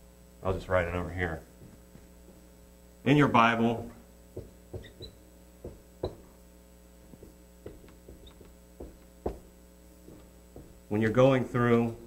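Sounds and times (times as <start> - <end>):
electrical hum: 0.0 - 12.0
marker squeaks: 4.8 - 5.3, 8.1 - 8.5
marker writing on whiteboard: 7.2 - 9.5.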